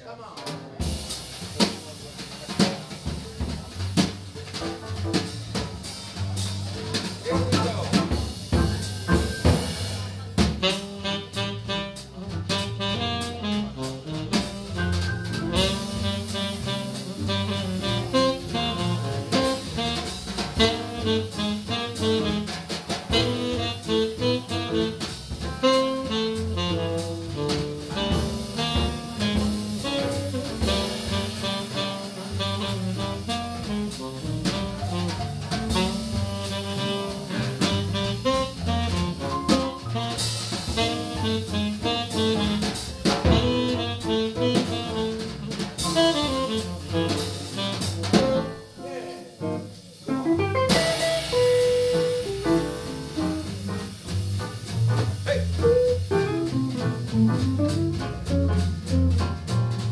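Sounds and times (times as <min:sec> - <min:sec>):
drum kit: 0:00.0 - 0:59.9
double bass: 0:00.7 - 0:59.9
piano: 0:00.7 - 0:59.9
tenor saxophone: 0:10.6 - 0:14.2, 0:15.5 - 0:22.5, 0:23.1 - 0:25.0, 0:25.6 - 0:42.6, 0:43.3 - 0:49.4.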